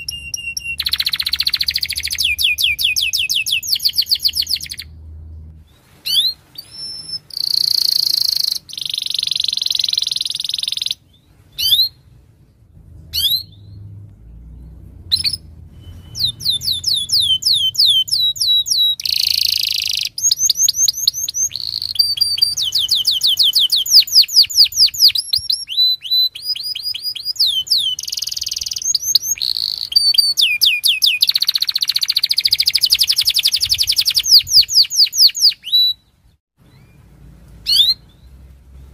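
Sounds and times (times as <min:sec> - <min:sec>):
canary singing fast trills: 0:00.0 - 0:05.0, 0:06.0 - 0:12.1, 0:13.1 - 0:38.9.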